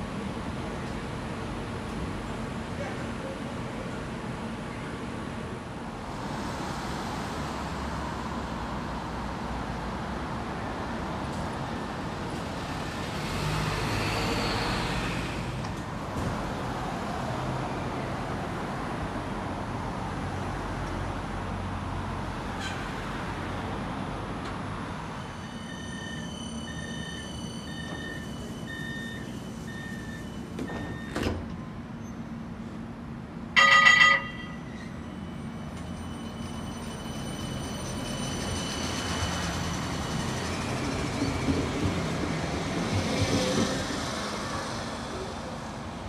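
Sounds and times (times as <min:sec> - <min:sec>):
tram rolling past: 0:00.0 - 0:46.0
tram warning beeps: 0:25.1 - 0:32.2, 0:33.5 - 0:42.3
tram bell ringing: 0:33.6 - 0:40.4.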